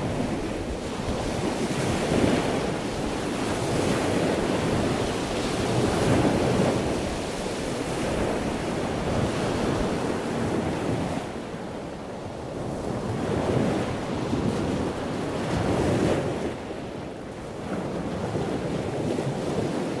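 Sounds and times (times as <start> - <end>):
wind blowing over microphone: 0.0 - 20.0.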